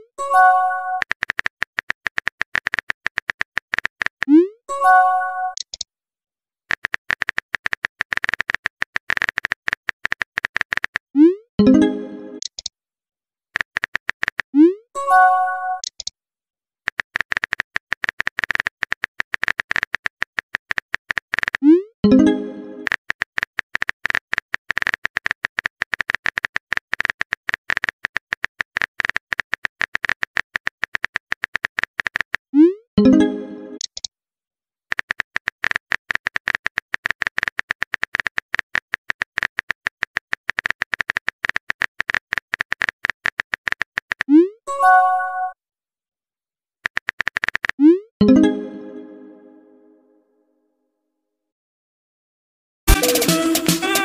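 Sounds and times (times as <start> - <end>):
message chime: 11.6 - 12.4, 33.0 - 33.8.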